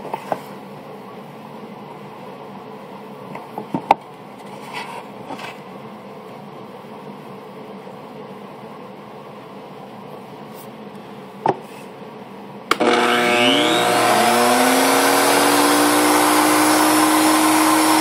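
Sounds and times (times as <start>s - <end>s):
router running: 12.7s - 18.0s.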